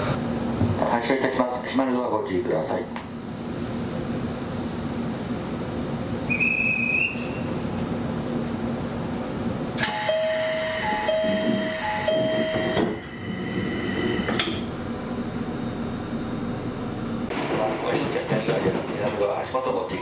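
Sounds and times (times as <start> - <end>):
train door chime: 9.8 - 13.0.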